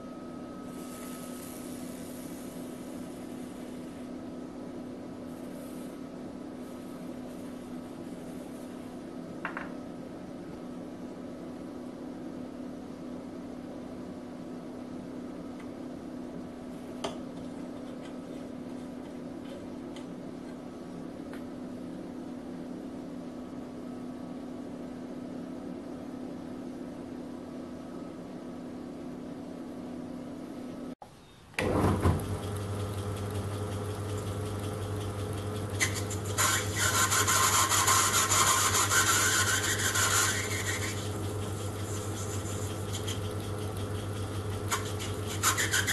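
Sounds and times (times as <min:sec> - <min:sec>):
torch generator humming: 0:00.5 - 0:04.6, 0:31.6 - 0:45.9
metal lathe humming: 0:31.6 - 0:45.9
lathe tool scraping metal: 0:35.7 - 0:45.9.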